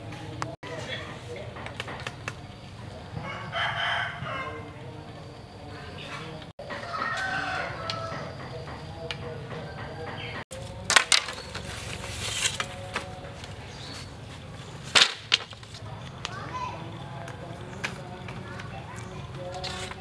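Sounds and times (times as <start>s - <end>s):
rooster crowing: 2.9s - 5.0s, 6.6s - 10.8s
bamboo knocking: 10.5s - 16.4s.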